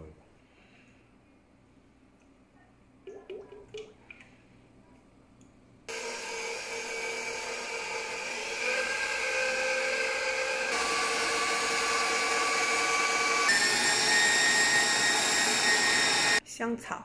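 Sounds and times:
stand mixer motor whine: 0:05.9 - 0:16.4.

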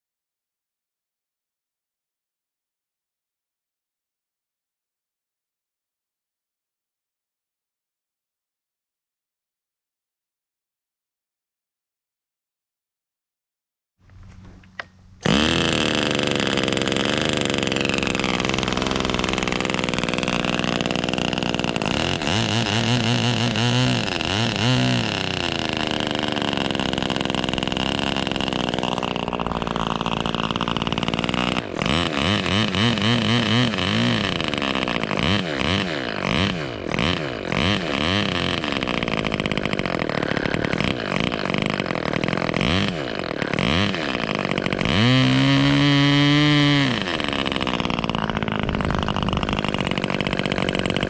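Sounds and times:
model engine running: 0:14.0 - 0:51.0.

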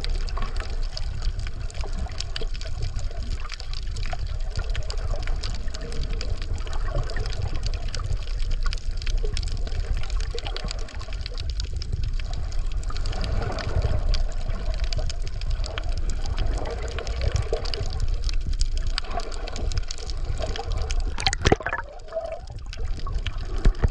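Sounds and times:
low rumble of moving water: 0:00.0 - 0:23.9
faint clicks: 0:00.2 - 0:23.9
water splash: 0:20.9 - 0:23.9.

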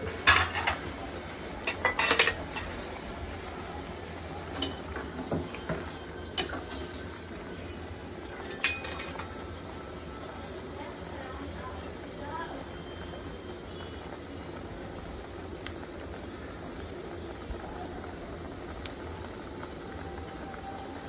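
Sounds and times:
spoon clinking against a pot: 0:01.7 - 0:02.8, 0:08.5 - 0:09.3.

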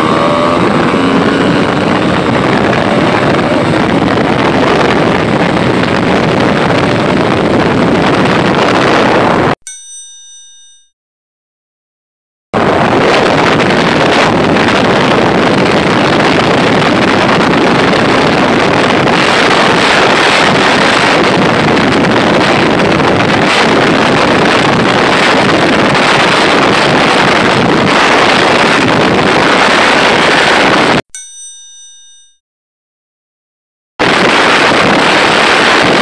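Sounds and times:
motorcycle engine drone: 0:00.0 - 0:09.6, 0:12.6 - 0:31.0, 0:34.0 - 0:36.0
wind roar over microphone: 0:00.0 - 0:09.6, 0:12.6 - 0:31.0, 0:34.0 - 0:36.0.

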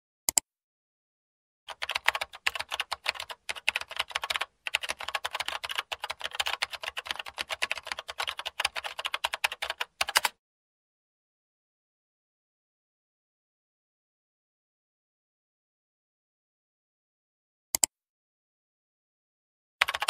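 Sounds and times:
keyboard typing clicks: 0:01.7 - 0:10.4.

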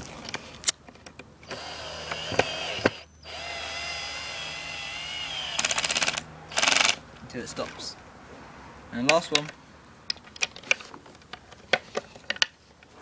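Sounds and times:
power drill whining: 0:01.4 - 0:07.0
drill clutch clicking rapidly: 0:01.5 - 0:07.0.

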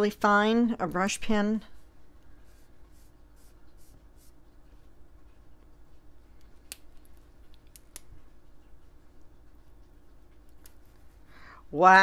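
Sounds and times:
brush pen strokes on paper: 0:01.6 - 0:05.4.

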